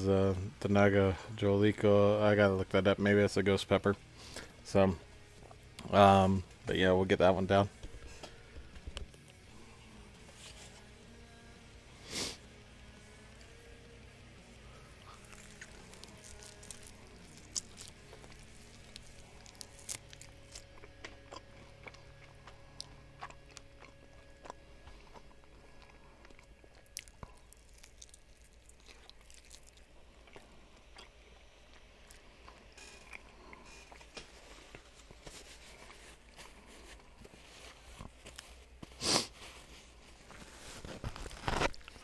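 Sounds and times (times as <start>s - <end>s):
chewing crunches: 15.0s - 34.8s.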